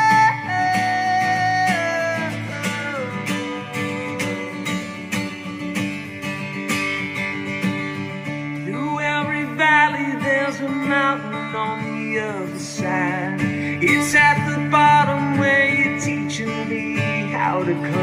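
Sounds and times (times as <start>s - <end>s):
man singing: 0.0s - 5.0s, 8.6s - 18.0s
acoustic guitar strumming: 0.0s - 18.0s.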